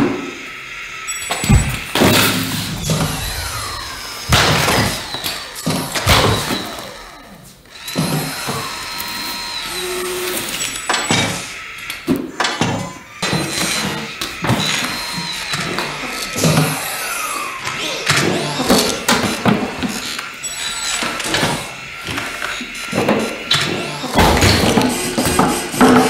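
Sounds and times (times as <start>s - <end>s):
robot motors whining: 0.0s - 26.0s
heavy thuds on concrete: 1.4s - 5.3s.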